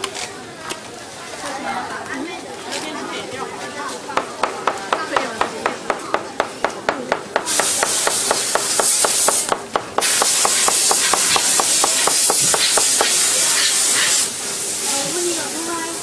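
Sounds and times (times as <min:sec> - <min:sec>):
loud hiss: 0:07.4 - 0:16.0.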